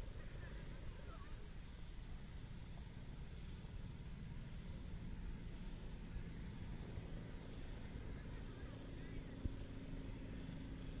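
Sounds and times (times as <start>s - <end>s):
insects chirping: 0.0s - 11.0s.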